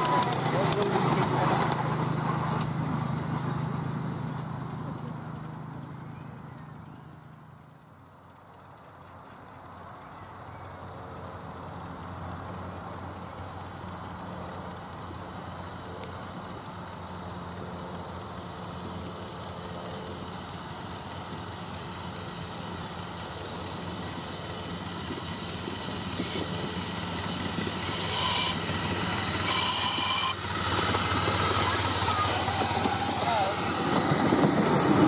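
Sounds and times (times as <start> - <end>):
miniature train rumbling on track: 0.0 - 35.0
steam hissing: 20.4 - 35.0.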